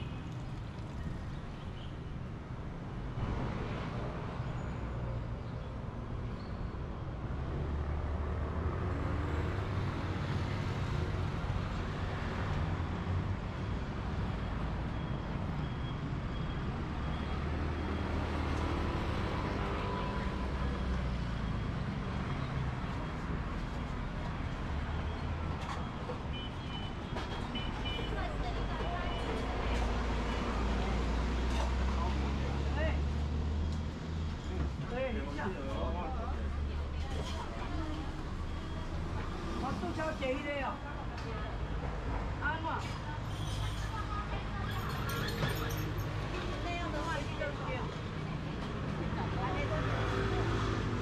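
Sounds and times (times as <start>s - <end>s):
rumble of passing vehicles: 0.0s - 51.0s.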